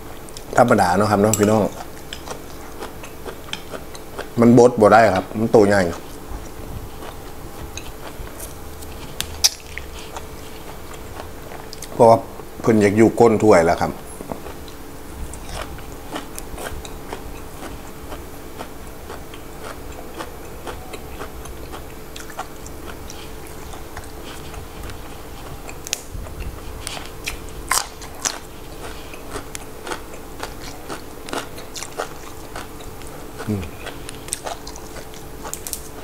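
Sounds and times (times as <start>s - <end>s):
chewing crisp vegetables: 0.3s - 13.0s, 13.7s - 36.0s.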